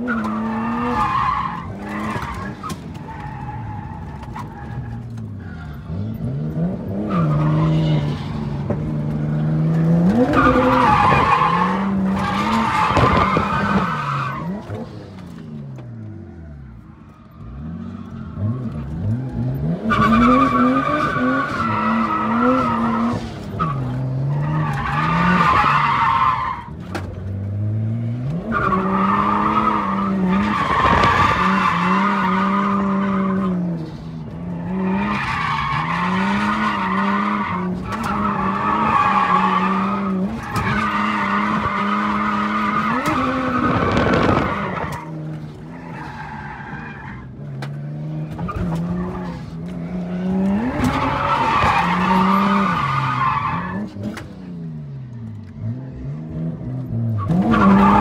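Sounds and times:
car engine revving high: 35.5 - 45.6.

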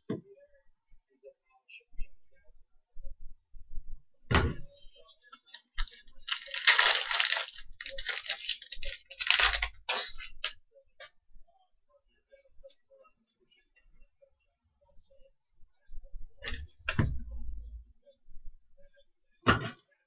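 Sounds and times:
trading cards shuffling: 5.5 - 10.6.

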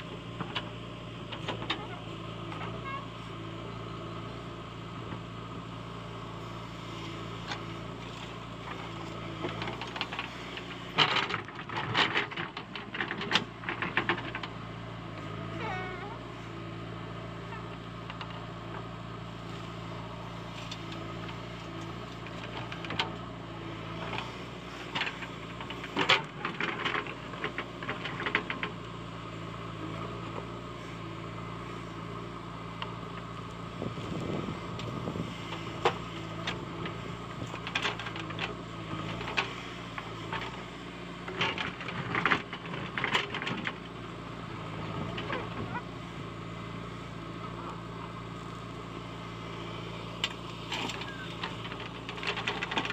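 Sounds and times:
diesel engine running under load: 0.0 - 52.9.

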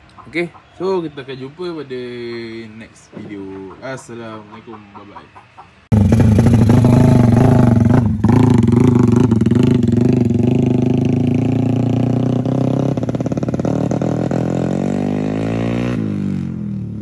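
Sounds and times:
small motorcycle engine: 5.9 - 17.0.

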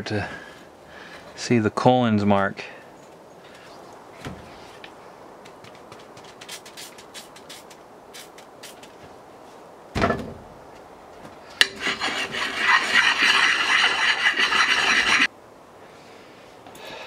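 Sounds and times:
abrasive pad scrubbing axe head: 11.6 - 15.3.

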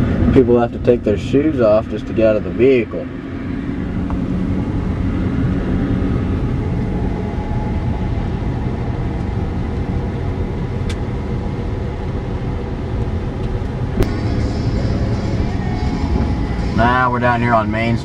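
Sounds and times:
car engine and tyre rumble: 0.0 - 18.0.

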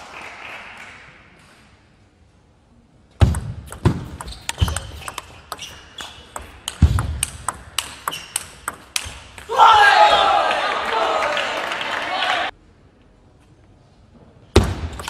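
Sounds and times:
table tennis ball clicking: 3.2 - 9.5.

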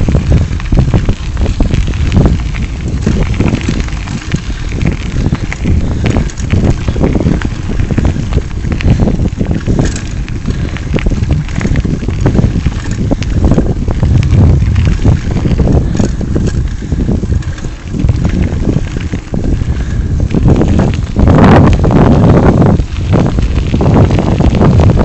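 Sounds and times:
bicycle rattling on gravel: 0.0 - 25.0
wind buffeting microphone: 0.0 - 25.0.

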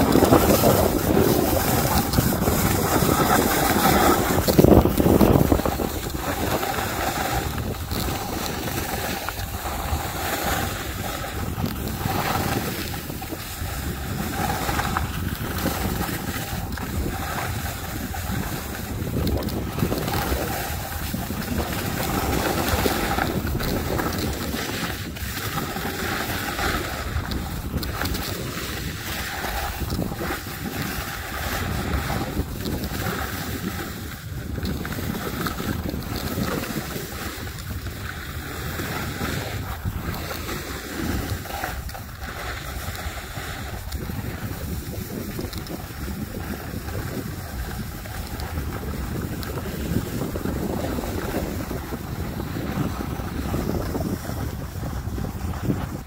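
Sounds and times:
skis sliding on snow: 0.0 - 56.0
wind rushing over microphone: 0.0 - 56.0.

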